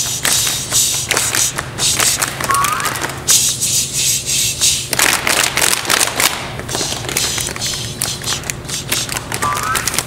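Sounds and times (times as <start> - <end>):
sharp taps and claps: 0.0 - 3.2
steady low hum: 0.0 - 10.0.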